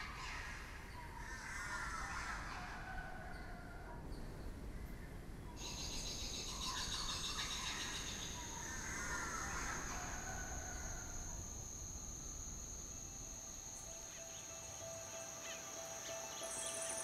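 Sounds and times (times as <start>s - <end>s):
high-pitched insect trill: 5.6s - 17.0s.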